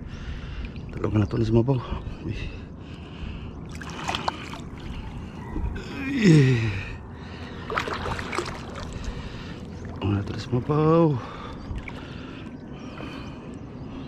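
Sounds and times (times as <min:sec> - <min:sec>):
water splashing and lapping: 0:02.8 - 0:14.0.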